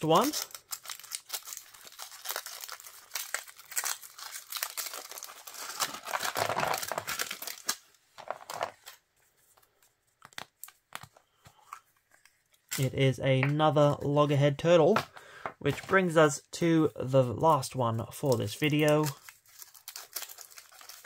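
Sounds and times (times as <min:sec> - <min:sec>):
foil wrapper crinkling and tearing: 0:00.0 - 0:09.0, 0:18.1 - 0:21.0.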